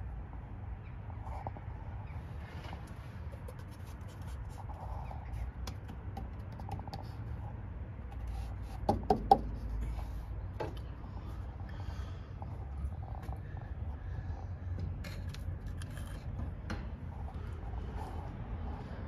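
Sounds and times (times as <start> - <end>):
sharp knocks: 8.9 - 9.6.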